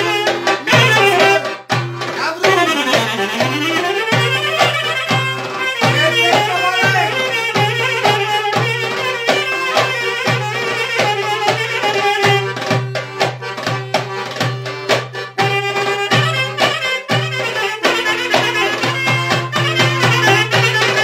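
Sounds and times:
accordion bass and chords: 0.0 - 21.0
hand drum beat: 0.0 - 21.0
saxophone melody: 0.0 - 21.0.

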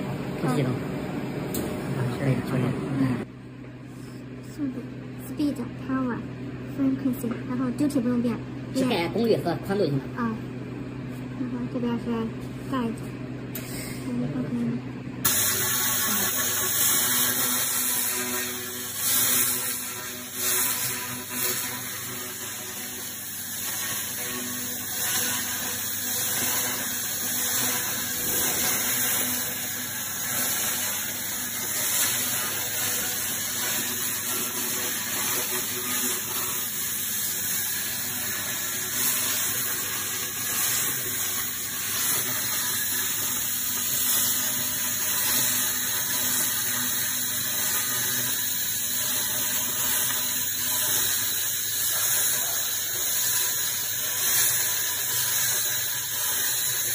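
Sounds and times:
laser cleaning high hiss: 15.2 - 56.9.

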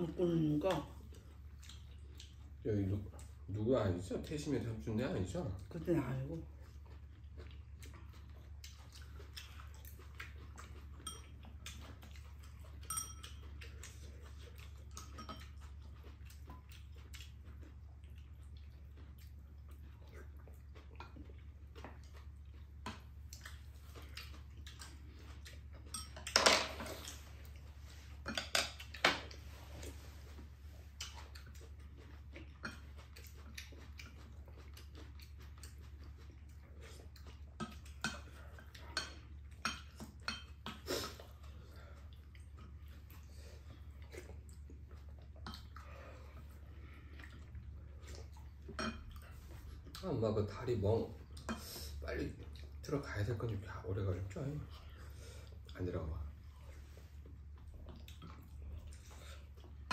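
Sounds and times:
spoons clinking on ceramic bowls: 11.0 - 11.4, 12.8 - 13.4.

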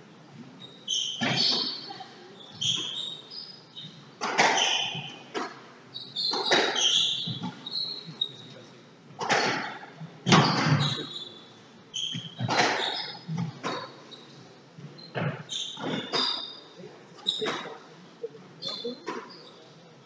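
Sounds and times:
shoes squeaking on wooden floor: 0.5 - 8.5, 9.2 - 17.9, 18.6 - 19.6
squash ball hits echoing: 12.2 - 13.0.

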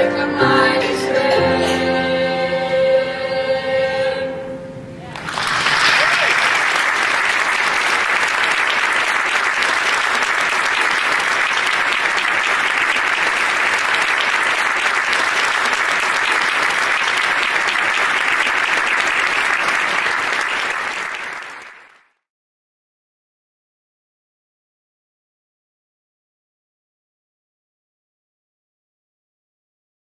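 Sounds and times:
audience applauding: 5.1 - 22.2.

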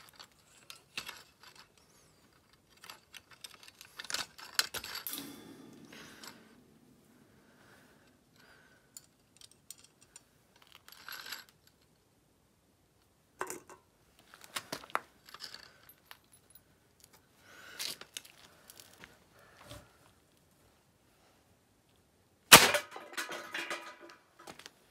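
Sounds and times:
light metallic clicks and clinks: 0.0 - 6.9.

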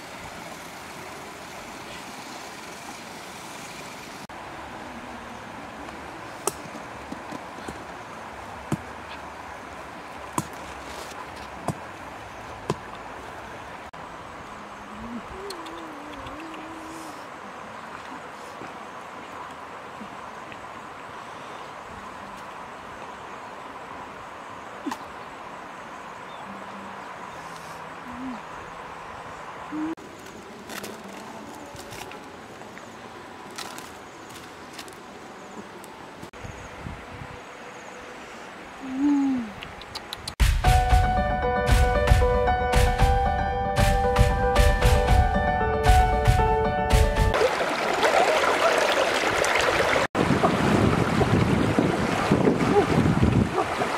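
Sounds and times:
rustling and crackling: 10.4 - 11.6, 30.0 - 32.7, 33.4 - 35.1.

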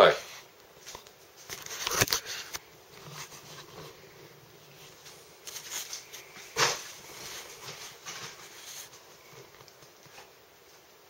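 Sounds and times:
camera handling rustling and clicks: 1.5 - 2.6.

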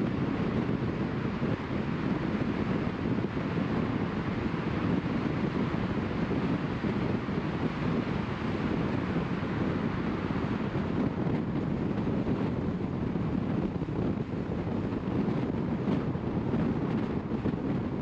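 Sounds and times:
car tyres on tarmac: 0.0 - 18.0
wind noise: 0.0 - 18.0.

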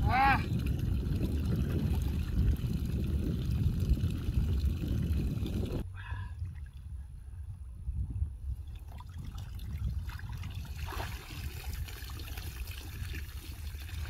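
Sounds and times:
water pouring from plastic drum: 0.2 - 5.8, 8.7 - 14.0.

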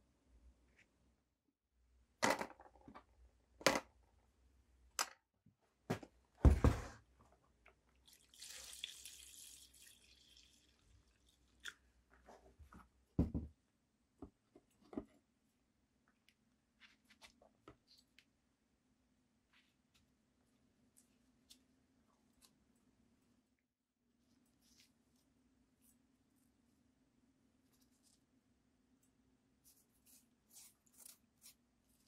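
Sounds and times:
liquid pouring and splashing: 8.0 - 11.9.

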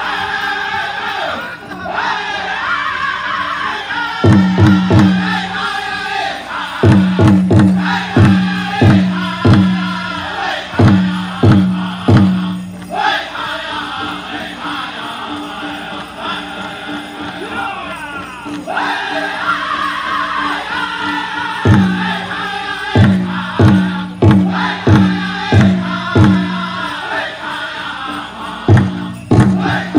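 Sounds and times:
group singing with high voices: 0.0 - 29.9
big drum beats: 4.2 - 5.6, 6.8 - 12.8, 21.6 - 26.9, 28.6 - 29.9.

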